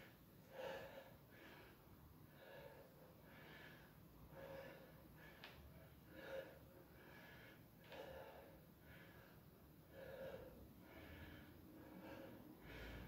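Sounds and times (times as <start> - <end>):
man breathing rhythmically: 0.0 - 13.0.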